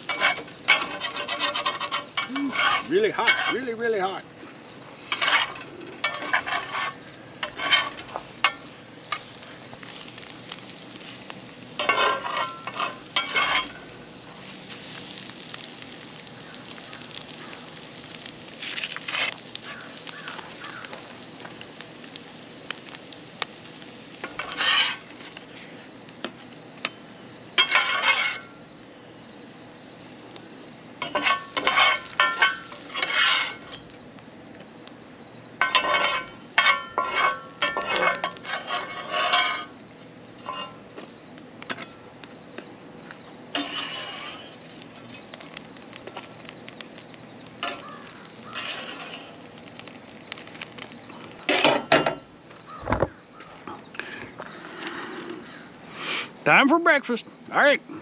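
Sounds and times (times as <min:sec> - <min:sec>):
metal spatula scraping skillet: 0:00.0 - 0:03.8, 0:05.0 - 0:09.3, 0:11.8 - 0:13.8, 0:24.2 - 0:25.7, 0:27.6 - 0:28.6, 0:31.0 - 0:33.8, 0:35.6 - 0:39.8, 0:40.4 - 0:40.8, 0:43.5 - 0:45.5, 0:47.6 - 0:49.4.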